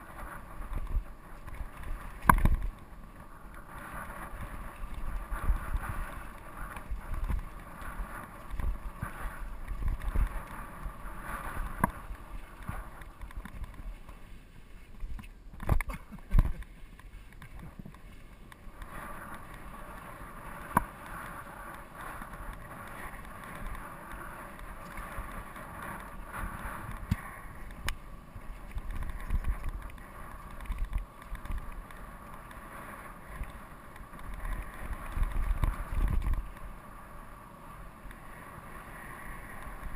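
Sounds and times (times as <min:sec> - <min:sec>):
wind buffeting microphone: 0:00.0 - 0:14.2, 0:18.7 - 0:32.4, 0:33.0 - 0:36.8
bike knocking and rattling: 0:00.6 - 0:02.9.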